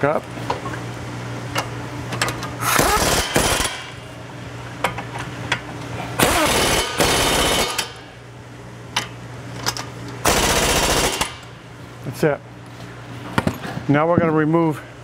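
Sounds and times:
impact wrench hammering: 2.6 - 4.0, 6.2 - 8.0, 10.3 - 11.5.

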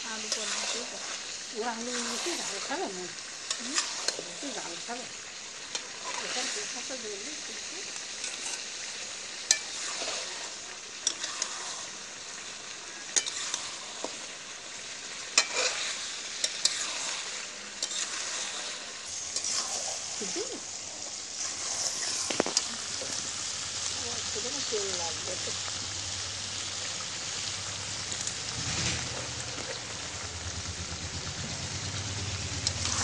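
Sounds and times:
curry sizzling in a pan: 0.0 - 33.0
spatula scraping pan: 0.1 - 7.1, 8.0 - 14.4, 15.0 - 23.6, 32.6 - 33.0.

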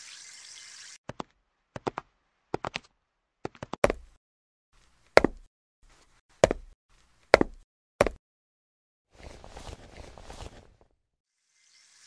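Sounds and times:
heel footsteps on hard walkway: 1.1 - 4.2, 5.1 - 5.5, 6.4 - 8.2
coat sleeve rustling: 9.1 - 11.0.

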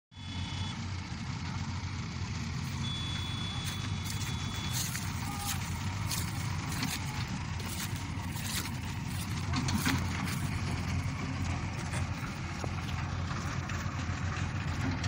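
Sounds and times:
distant diesel engines rumbling: 0.1 - 15.0
high-pitched tone: 2.7 - 7.8.

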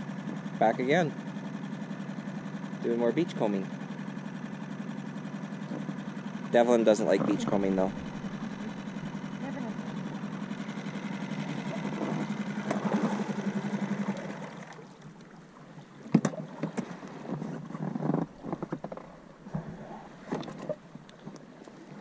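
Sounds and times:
outboard motor humming: 0.0 - 22.0
water splashing: 6.6 - 22.0.

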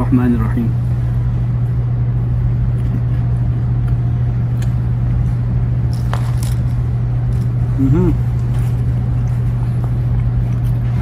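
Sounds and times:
low droning hum: 0.0 - 11.0.

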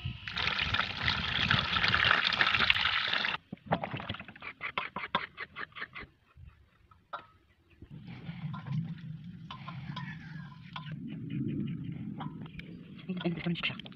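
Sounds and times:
water pouring into steel basin: 0.3 - 3.4.

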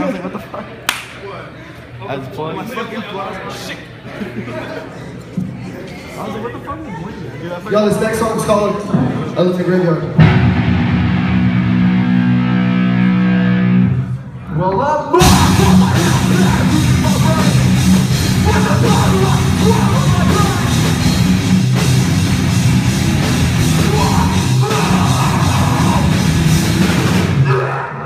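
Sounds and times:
bass: 10.1 - 27.8
drum kit: 10.2 - 13.8, 15.2 - 27.5
distorted electric guitars: 10.2 - 14.3, 15.2 - 27.7
shouted vocals: 15.1 - 21.2, 23.6 - 26.5.

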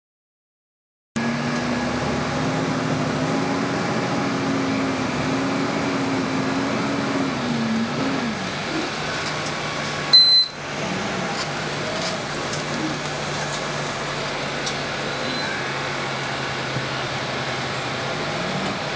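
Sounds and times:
bus engine running: 1.2 - 18.9
high electronic beep: 10.1 - 10.6.

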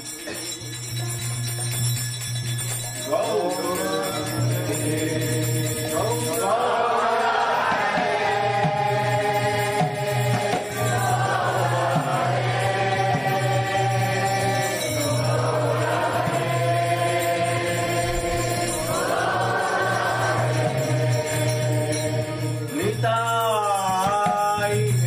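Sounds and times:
voices singing slow chant: 3.0 - 23.0.

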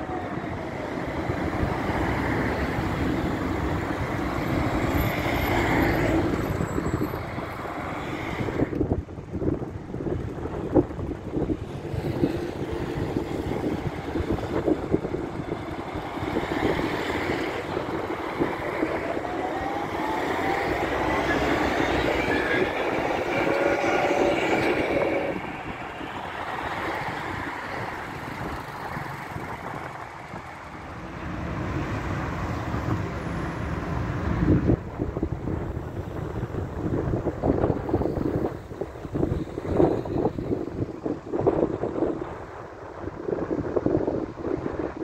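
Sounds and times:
tram wheels rumbling on rails: 0.0 - 45.0
tram motor whine: 12.0 - 28.0.

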